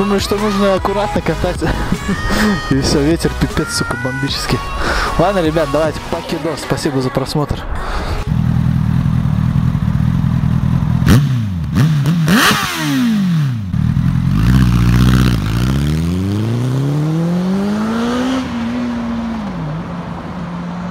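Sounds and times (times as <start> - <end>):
motorcycle engine revving: 8.2 - 20.8.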